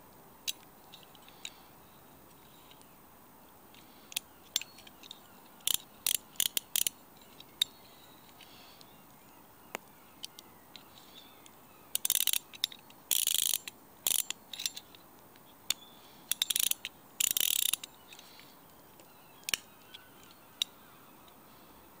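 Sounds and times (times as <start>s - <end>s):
fishing reel ratchet clicking: 5.6s - 6.9s, 12.0s - 12.5s, 13.1s - 14.7s, 16.3s - 17.9s.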